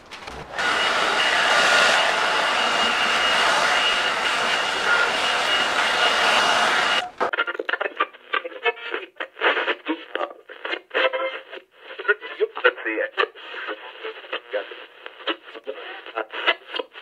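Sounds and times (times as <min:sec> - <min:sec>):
hot-air blower running: 0:00.1 - 0:07.3.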